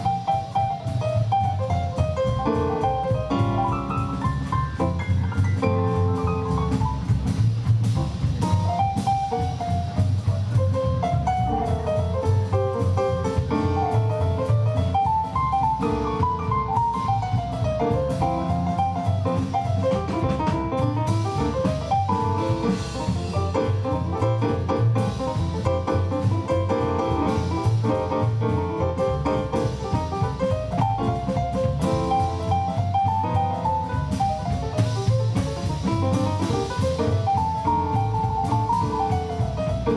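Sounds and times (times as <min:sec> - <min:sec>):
drum kit beat: 0:00.0 - 0:39.9
piano melodic lines: 0:00.0 - 0:39.9
walking double bass: 0:00.0 - 0:39.9.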